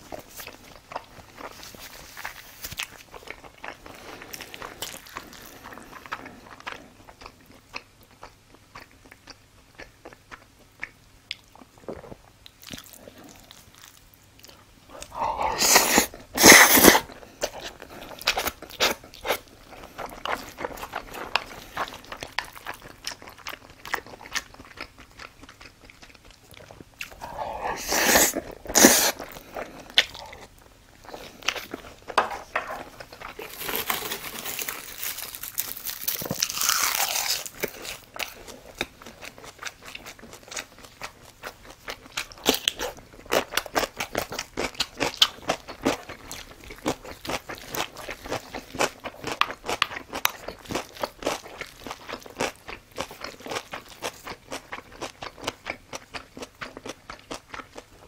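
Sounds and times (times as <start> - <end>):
person chewing food: 0.0 - 58.0.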